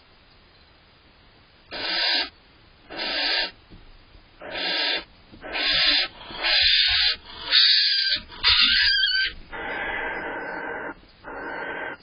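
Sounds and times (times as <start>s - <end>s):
barn owl hissing screeches: 1.7s - 3.6s, 4.4s - 12.0s.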